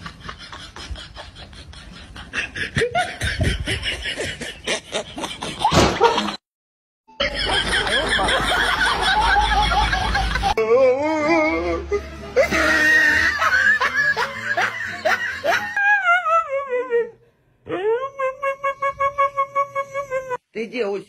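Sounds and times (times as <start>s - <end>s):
person snickering and laughing: 0.0s - 6.4s, 7.2s - 10.7s, 11.9s - 17.1s.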